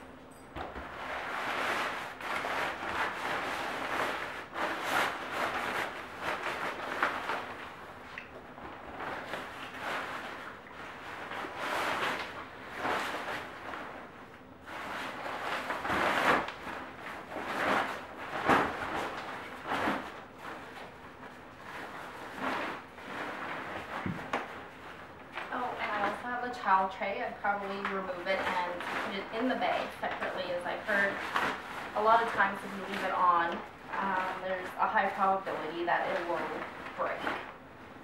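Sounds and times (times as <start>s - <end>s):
nylon bag rustling and swishing: 0.6s - 38.0s.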